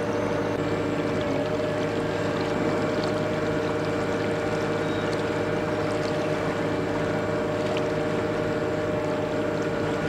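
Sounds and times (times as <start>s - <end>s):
ship diesel engine droning: 0.0s - 10.0s
water rushing at hull: 0.0s - 10.0s.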